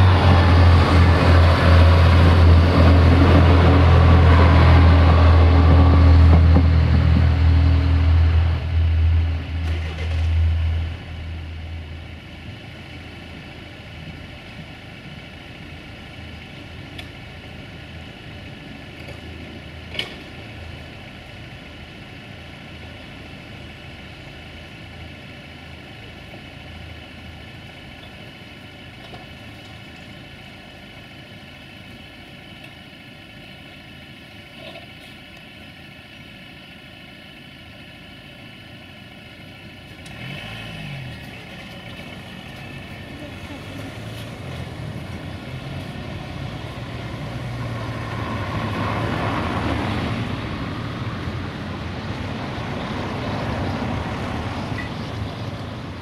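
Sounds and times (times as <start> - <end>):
heavy low rumble: 0.0 - 16.8
engine idling: 0.0 - 40.4.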